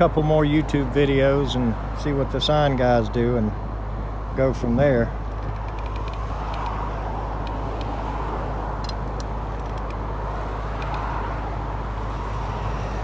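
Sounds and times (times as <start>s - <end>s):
faint clicks: 5.3s - 6.8s, 10.8s - 11.1s.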